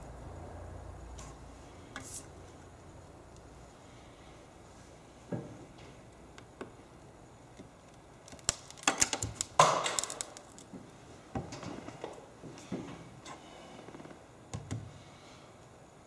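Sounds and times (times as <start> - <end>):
glass clicks and crackles: 7.8 - 10.7.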